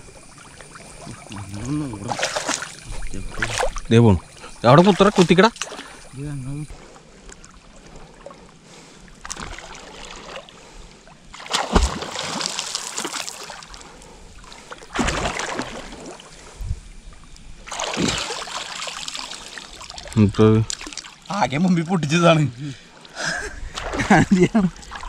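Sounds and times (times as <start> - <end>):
water splashing and sloshing: 0.0 - 25.0
sharp water slaps: 2.0 - 3.8, 4.9 - 6.0, 9.2 - 10.5, 11.3 - 13.8, 14.8 - 16.2, 17.7 - 20.1, 20.7 - 21.2, 23.7 - 25.0.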